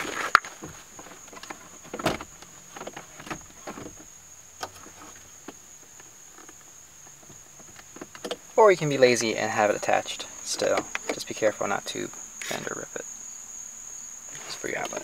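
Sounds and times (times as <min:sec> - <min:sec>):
thin high-pitched whine: 0:08.6 - 0:15.0.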